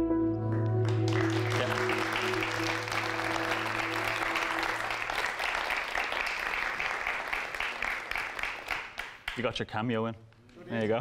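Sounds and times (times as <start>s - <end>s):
background music: 0.0s - 5.7s
audience clapping: 0.5s - 9.6s.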